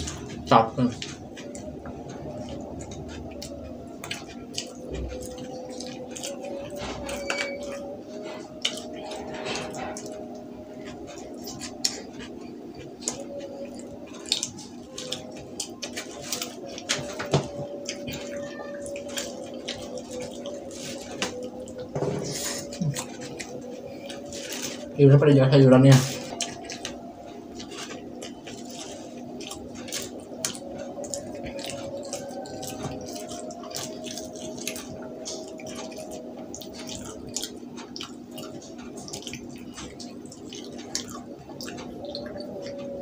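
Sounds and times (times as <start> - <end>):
person chewing a burger: 0.0 - 25.0, 25.9 - 43.0
steady low hum: 0.0 - 43.0.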